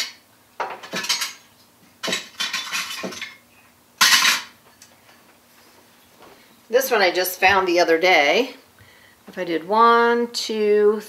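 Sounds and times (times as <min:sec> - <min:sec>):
metal utensils clinking: 0:00.0 - 0:03.4, 0:04.0 - 0:04.6.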